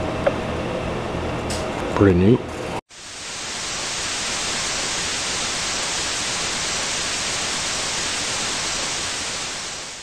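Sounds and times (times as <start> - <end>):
tv static hiss: 2.9 - 10.0.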